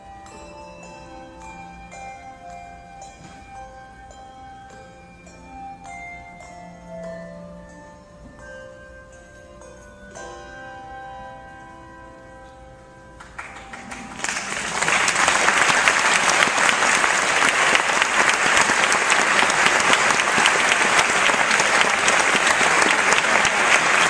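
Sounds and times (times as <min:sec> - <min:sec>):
handbell chord ringing: 0:00.0 - 0:14.2
audience applause: 0:13.3 - 0:24.0.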